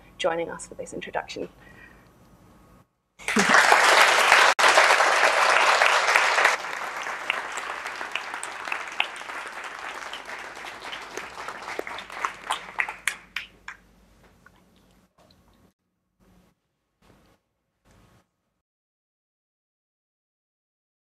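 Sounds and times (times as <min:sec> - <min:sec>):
audience applauding: 0:03.2 - 0:13.8.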